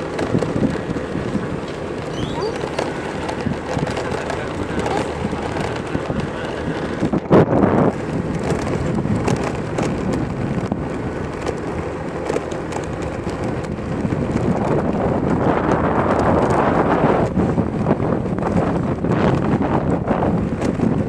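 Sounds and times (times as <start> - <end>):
road and motor noise: 0.0 - 21.0
wind buffeting microphone: 0.0 - 21.0.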